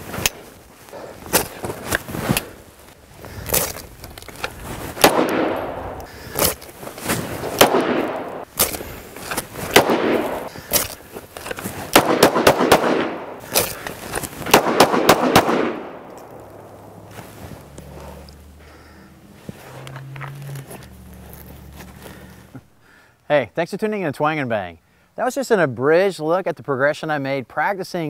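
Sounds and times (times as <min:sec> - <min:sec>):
handgun shots with echo: 0:05.0 - 0:06.0, 0:07.6 - 0:08.4, 0:09.7 - 0:10.5, 0:11.9 - 0:13.7, 0:14.5 - 0:16.7.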